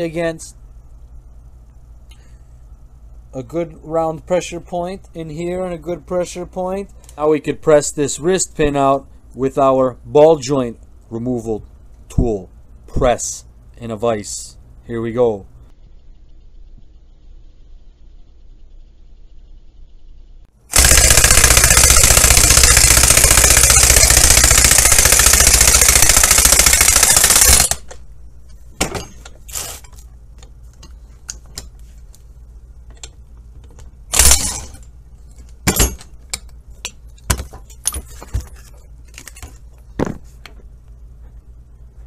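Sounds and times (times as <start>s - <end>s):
impact wrench running: 20.7s - 28.0s, 34.1s - 34.8s
metal parts clinking: 34.2s - 39.7s.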